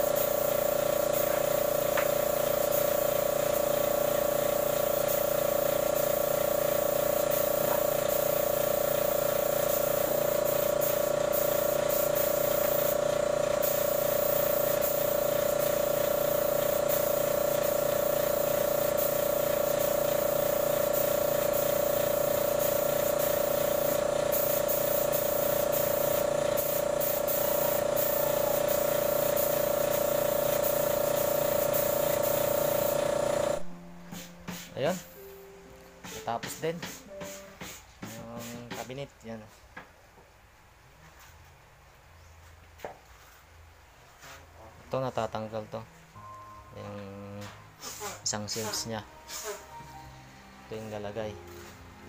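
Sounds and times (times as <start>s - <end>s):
air compressor motor hum: 0.0s - 35.2s
spray gun hissing: 0.0s - 35.2s, 47.8s - 49.7s.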